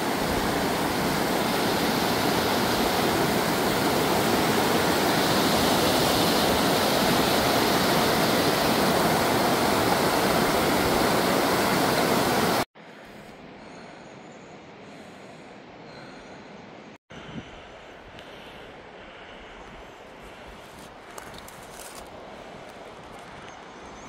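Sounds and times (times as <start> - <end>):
stream rushing over rocks: 0.0 - 12.7.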